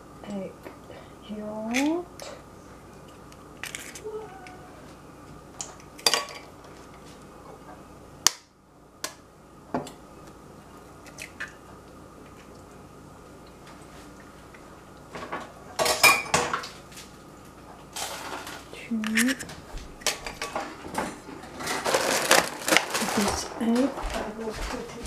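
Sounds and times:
glass and dishware clinking: 15.8 - 16.6.

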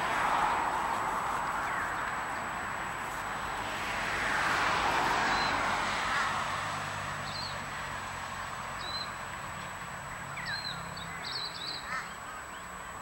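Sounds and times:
steady rushing noise: 0.0 - 8.2.

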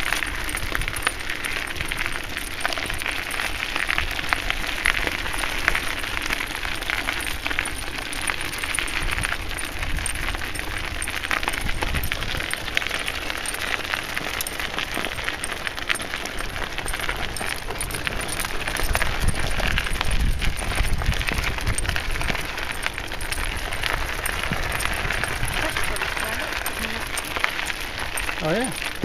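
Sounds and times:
bicycle rolling on gravel: 0.0 - 29.0
dog harness jingling: 0.0 - 29.0
wind rumbling on the microphone: 0.0 - 29.0.

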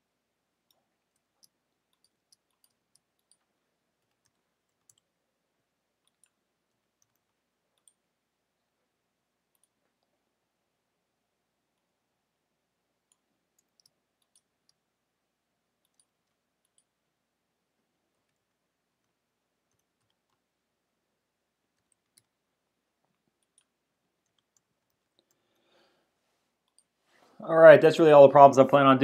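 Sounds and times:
computer keyboard typing: 0.6 - 5.2, 6.0 - 8.1, 13.0 - 14.8, 15.8 - 17.0, 21.7 - 22.4.

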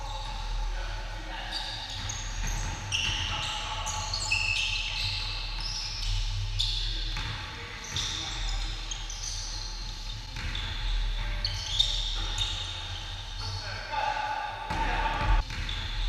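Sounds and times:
sneakers squeaking on gym floor: 1.4 - 13.9, 14.7 - 16.0
basketball bouncing: 10.3 - 10.8, 14.7 - 16.0.

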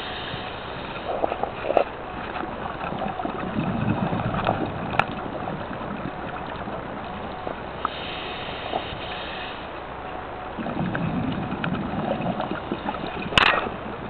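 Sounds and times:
regulator hissing: 0.0 - 1.2, 7.8 - 9.8
exhaled bubbles underwater: 0.0 - 9.2, 10.4 - 14.0.

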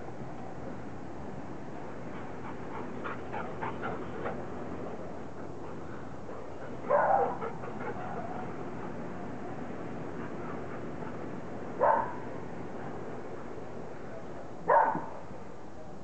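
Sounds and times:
dog barking: 6.9 - 7.5, 11.8 - 12.3, 14.7 - 15.2
dogs yipping: 11.8 - 12.2.

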